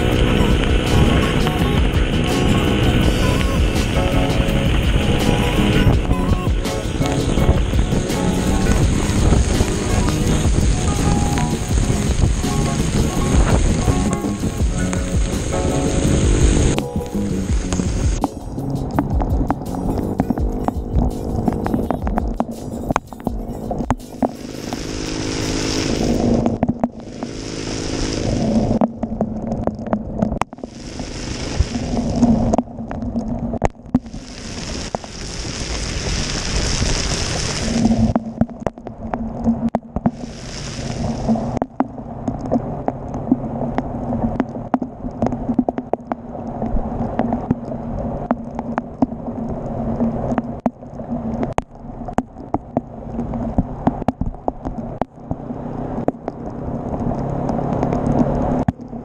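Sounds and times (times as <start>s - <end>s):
motorcycle engine running: 0.0s - 28.4s
hissing rushes: 0.0s - 28.8s, 30.5s - 32.5s, 34.0s - 38.2s, 40.1s - 41.6s.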